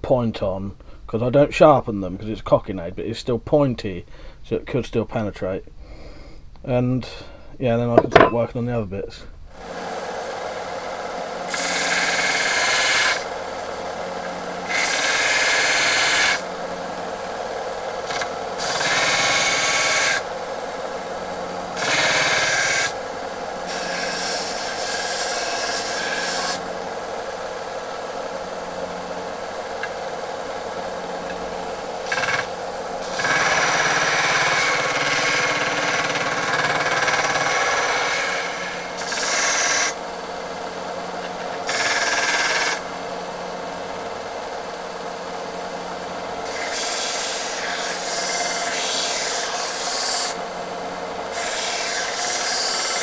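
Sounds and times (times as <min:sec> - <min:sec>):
belt sander humming: 0:09.6 - 0:53.0.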